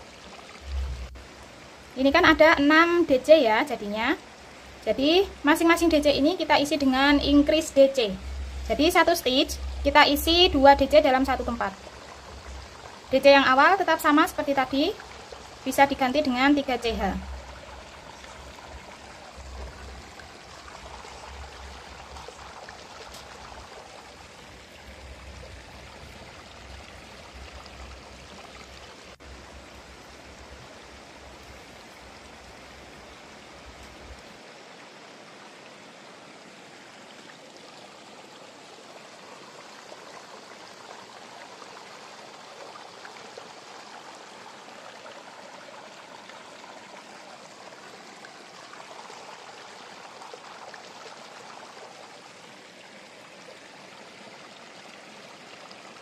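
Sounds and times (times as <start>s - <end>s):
steady background hiss: 0.0s - 56.0s
low hum: 7.0s - 13.2s.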